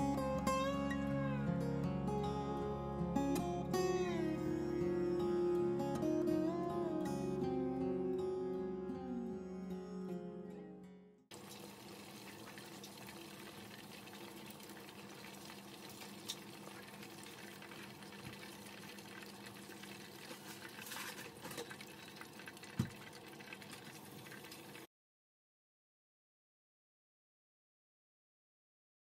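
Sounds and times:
chicken deep-frying in oil: 0:11.3 - 0:24.9.

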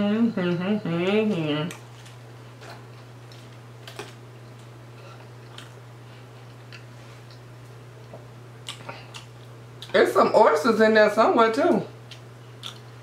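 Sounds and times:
crunchy chewing of fried food: 0:01.7 - 0:10.0, 0:12.0 - 0:13.0.

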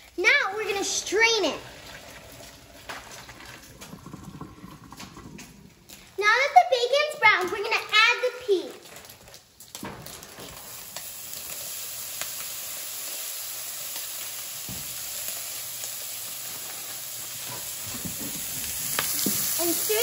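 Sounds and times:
bacon sizzling in a frying pan: 0:05.3 - 0:20.0.

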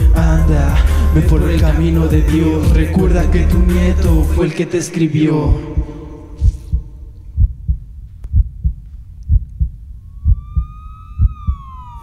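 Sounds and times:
hip-hop beat with kick drum: 0:00.0 - 0:04.5
siren-like wail: 0:10.0 - 0:12.0.

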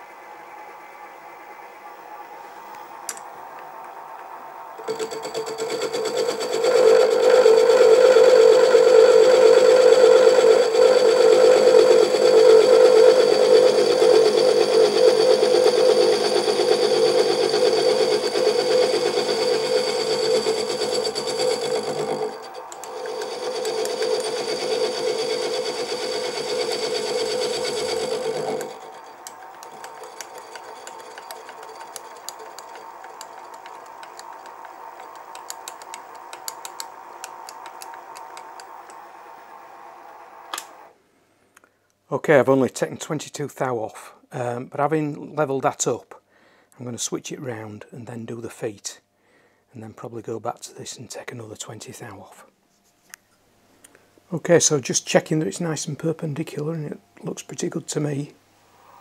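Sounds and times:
faint hum: 0:00.0 - 0:42.4
milling machine cutting whine: 0:00.1 - 0:40.9.

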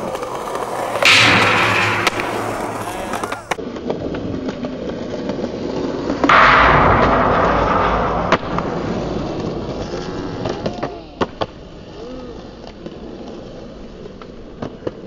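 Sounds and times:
sharp clack: 0:00.0 - 0:03.6, 0:06.3 - 0:11.0
skateboard wheels rolling on concrete: 0:00.0 - 0:06.3, 0:08.9 - 0:15.0.

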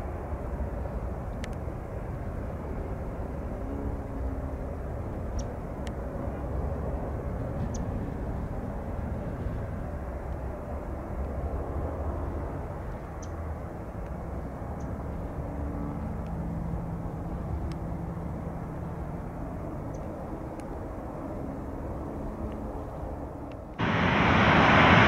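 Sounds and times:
distant airliner engine rumble: 0:00.0 - 0:25.0.

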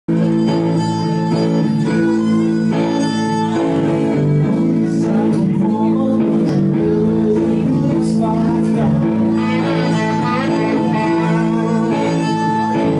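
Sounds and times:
violin playing: 0:00.1 - 0:04.6, 0:09.3 - 0:12.9
electric guitars playing: 0:00.1 - 0:12.9.

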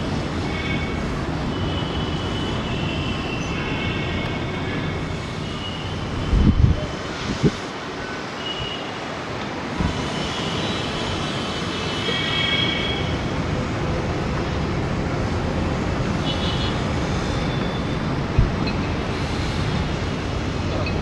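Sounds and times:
jet engines roaring on takeoff: 0:16.9 - 0:21.0.

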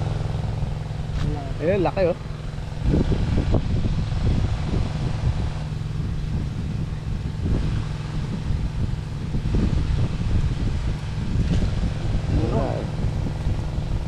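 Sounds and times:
small engine droning: 0:00.0 - 0:14.0
uneven bumps and rumbles: 0:00.0 - 0:14.0.

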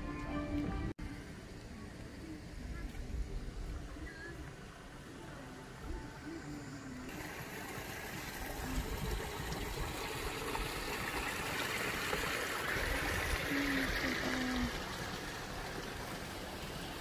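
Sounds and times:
water trickling in stone channel: 0:07.1 - 0:17.0.

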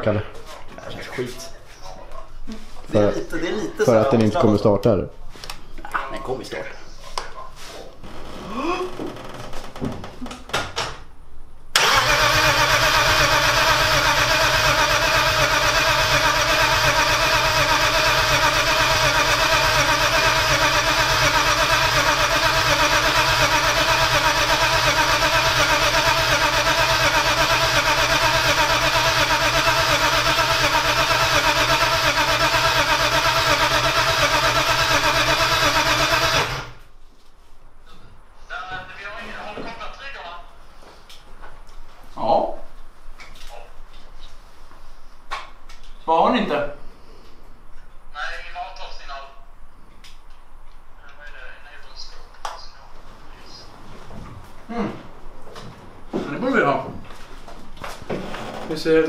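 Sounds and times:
car engine cranking on starter: 0:11.8 - 0:36.8.

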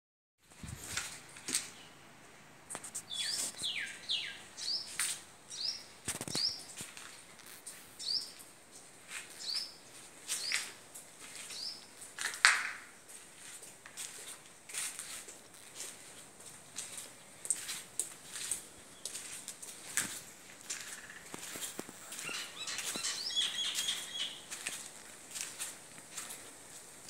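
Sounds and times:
small bird chirping: 0:03.0 - 0:06.8, 0:07.4 - 0:08.4, 0:09.3 - 0:09.8, 0:11.4 - 0:11.9, 0:20.8 - 0:24.5.

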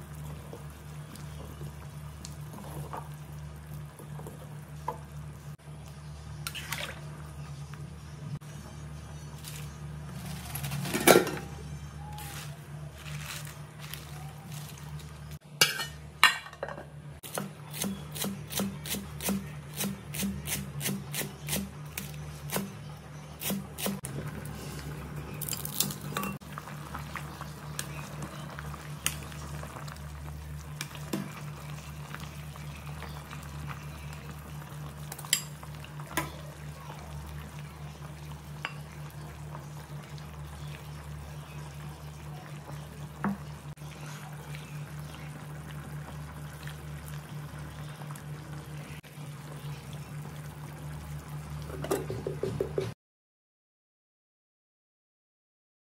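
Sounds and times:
ladle clinking against pot: 0:15.6 - 0:16.8.

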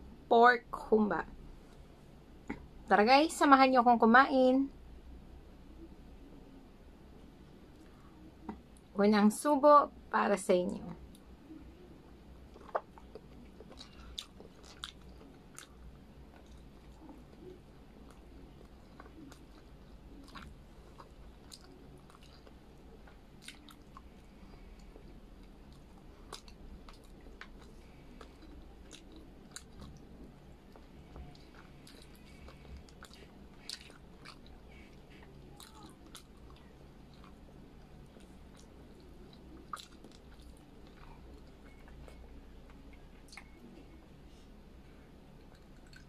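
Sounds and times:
wet chewing mouth clicks: 0:12.5 - 0:43.6.

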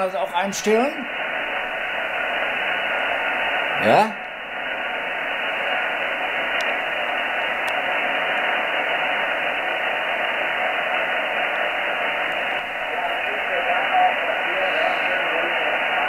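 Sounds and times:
radio band noise hiss: 0:00.0 - 0:16.0
faint clicks: 0:06.5 - 0:06.8, 0:07.6 - 0:07.9.

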